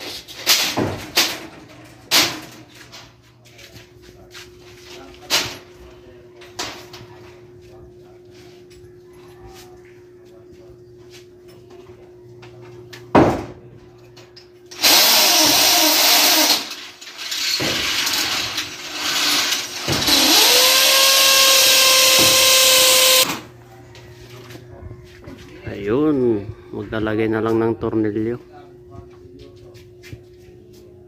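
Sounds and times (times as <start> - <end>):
electric drill boring: 14.8 - 16.7, 20.0 - 23.3.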